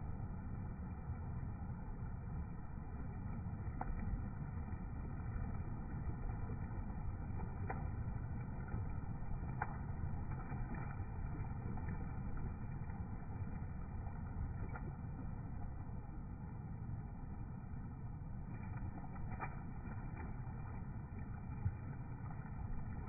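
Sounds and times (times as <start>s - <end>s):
river water pouring over weir: 0.0s - 23.0s.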